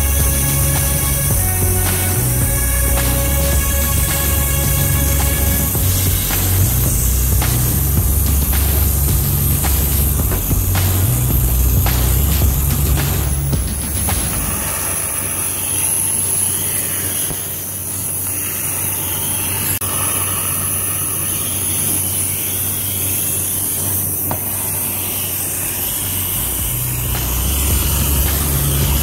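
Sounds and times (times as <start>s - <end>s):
fidget spinner whirring: 0.0s - 29.0s.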